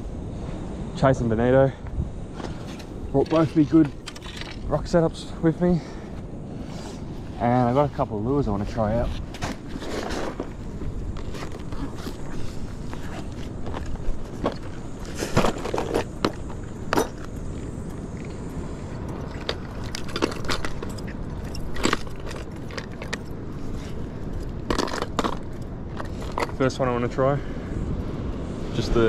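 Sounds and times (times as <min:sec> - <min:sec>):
steady low rumble: 0:00.0 - 0:29.0.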